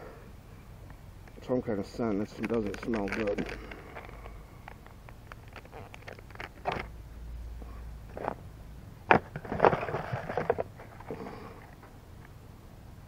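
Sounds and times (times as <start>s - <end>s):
packaging crinkling and rattling: 2.2s - 6.9s, 9.1s - 11.8s.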